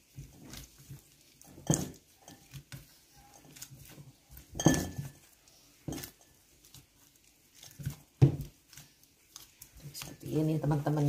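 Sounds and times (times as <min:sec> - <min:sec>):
gloved hand kneading dough: 0:00.0 - 0:11.0.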